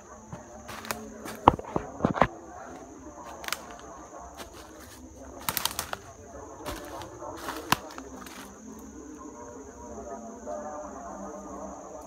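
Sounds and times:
leaves and twigs crackling: 0.0s - 9.3s
high insect drone: 0.0s - 12.0s
footsteps crunching dry leaves: 0.4s - 8.6s.

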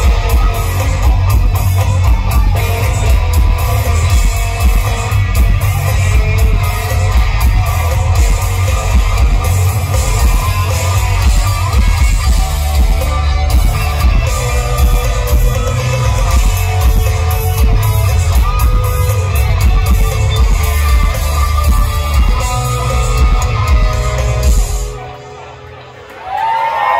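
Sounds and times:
live rock band playing: 0.0s - 26.1s.

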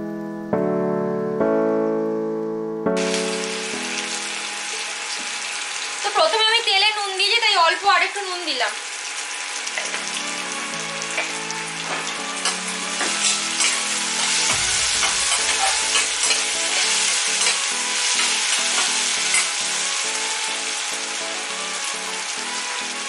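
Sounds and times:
vegetables sizzling in hot oil: 3.0s - 23.0s
spatula scraping and tapping pan: 11.2s - 19.5s.

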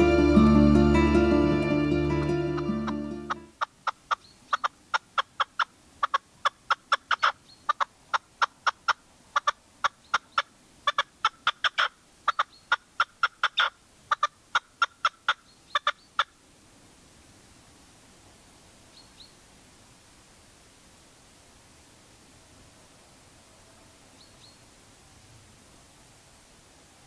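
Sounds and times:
partridge calling: 2.2s - 16.4s.

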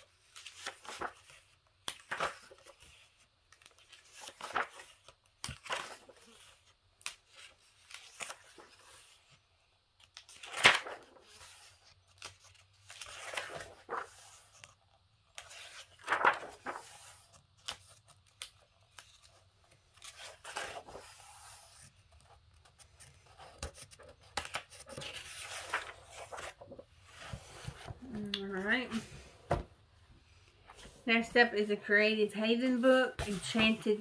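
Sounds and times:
book pages turning: 0.0s - 9.4s, 10.0s - 31.7s, 33.2s - 34.0s
paper handling clicks: 15.4s - 19.4s.

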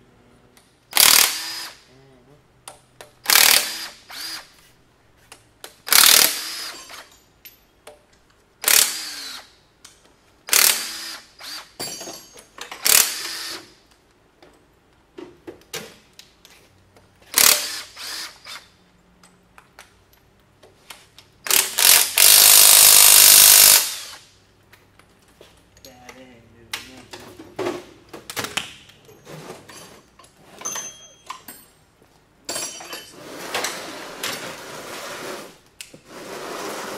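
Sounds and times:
impact wrench bursts: 0.9s - 1.9s, 3.2s - 4.6s, 5.8s - 7.1s, 8.6s - 9.6s, 10.5s - 11.8s, 12.7s - 13.8s, 17.3s - 18.7s, 21.4s - 24.4s.

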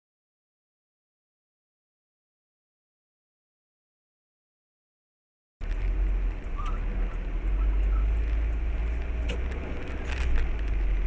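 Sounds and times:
car driving on wet road: 5.6s - 11.0s.

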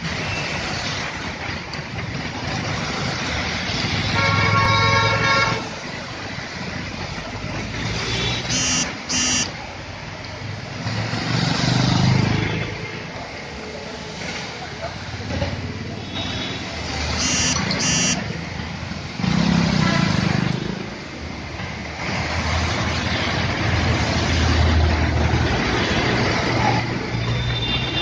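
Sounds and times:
vehicle engines passing: 0.0s - 27.5s
vehicle horn: 8.4s - 9.5s, 17.2s - 18.2s.

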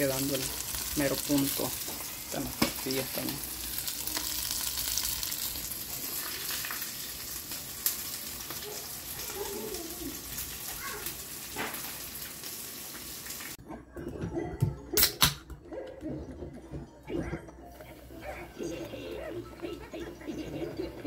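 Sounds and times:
food sizzling in a pan: 0.0s - 13.6s.

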